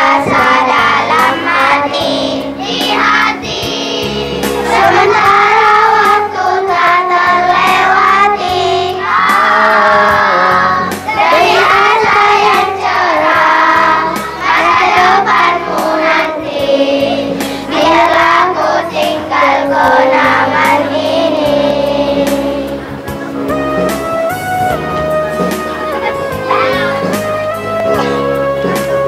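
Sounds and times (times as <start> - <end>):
children's choir singing: 0.0 - 23.5.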